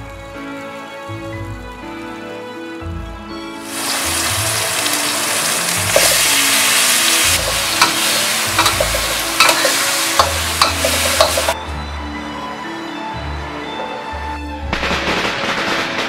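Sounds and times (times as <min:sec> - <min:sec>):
food sizzling in wok: 0:03.6 - 0:11.6
metal spatula scraping wok: 0:03.7 - 0:11.6.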